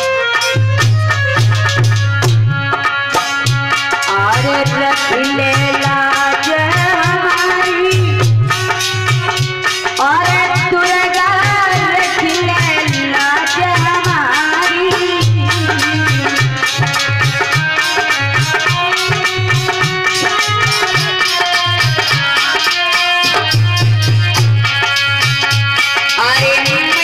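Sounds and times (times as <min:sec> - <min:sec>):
hand drum beat: 0:00.0 - 0:27.0
harmonium melody: 0:00.0 - 0:27.0.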